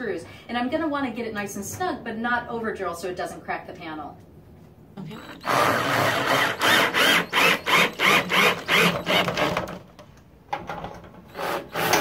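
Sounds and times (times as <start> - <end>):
cordless drill driving screw: 5.2 - 9.8.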